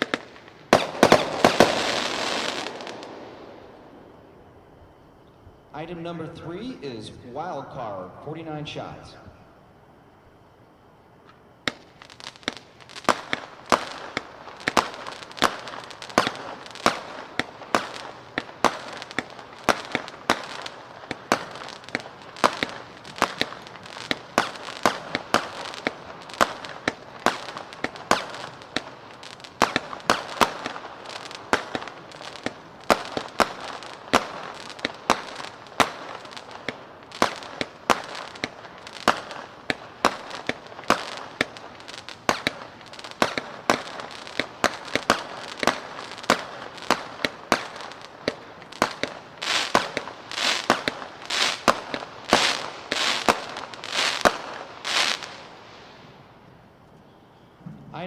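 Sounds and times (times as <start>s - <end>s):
firework sharp bangs: 0.0s - 4.0s, 11.6s - 56.2s.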